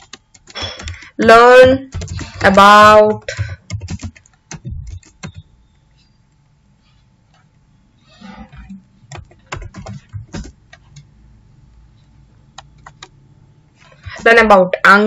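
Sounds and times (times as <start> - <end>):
keyboard typing: 0.0 - 6.5, 8.2 - 11.2, 12.5 - 13.2.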